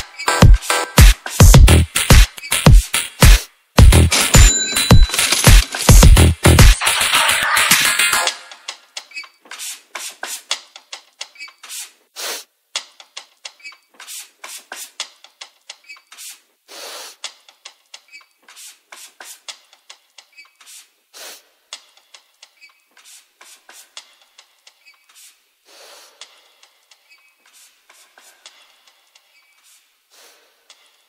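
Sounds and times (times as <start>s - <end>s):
electronic percussion hits and clicks: 0.0s - 8.8s.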